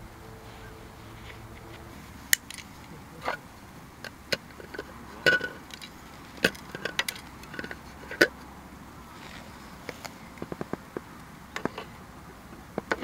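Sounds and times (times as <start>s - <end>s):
plastic and metal parts clicking: 4.0s - 8.3s.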